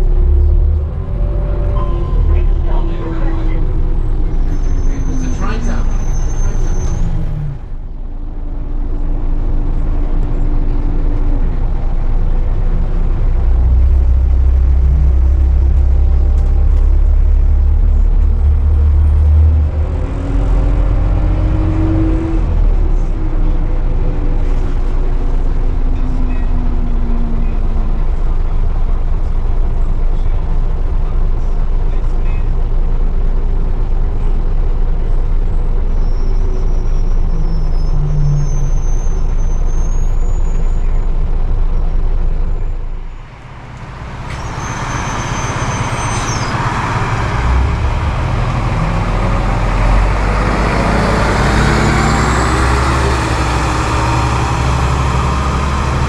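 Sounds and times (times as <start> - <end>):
high whine: 0.0 - 8.5
bus engine pulling away: 0.0 - 56.0
bus running heard from inside: 0.0 - 56.0.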